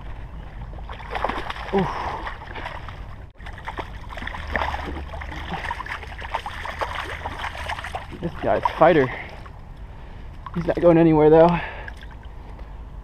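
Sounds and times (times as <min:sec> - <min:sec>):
fish splashing in water: 0:00.7 - 0:09.5.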